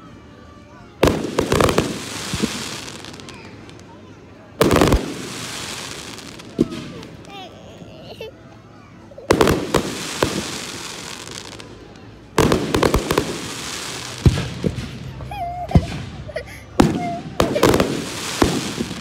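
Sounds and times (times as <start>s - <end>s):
firework booms: 1.0s - 3.5s, 4.6s - 7.1s, 9.3s - 11.6s, 12.4s - 19.0s
firework crackling hiss: 1.0s - 3.9s, 4.6s - 7.8s, 9.3s - 19.0s.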